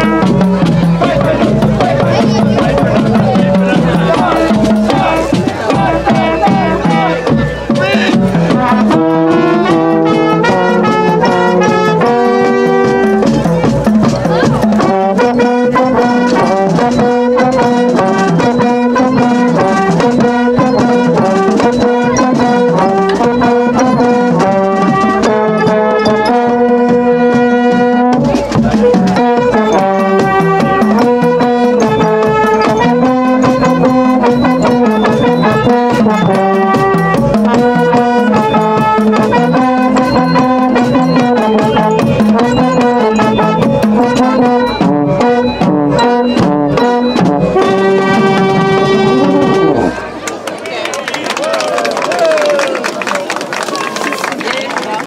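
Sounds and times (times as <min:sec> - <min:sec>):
marching snare drums: 0:00.0 - 0:49.8
brass and saxophones playing tune: 0:00.0 - 0:50.4.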